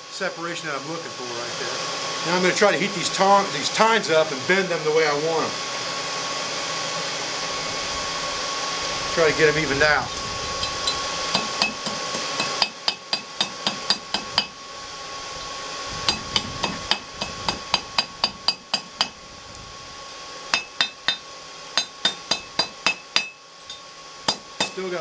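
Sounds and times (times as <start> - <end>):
hammer striking steel on anvil: 10.8 - 14.6, 16.1 - 19.2, 20.5 - 21.2, 21.8 - 24.8.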